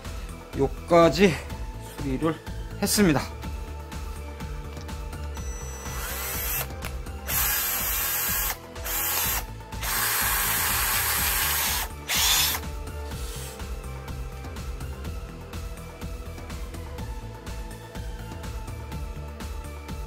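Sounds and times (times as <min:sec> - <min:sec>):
cordless drill whirring: 0:05.4 - 0:12.6.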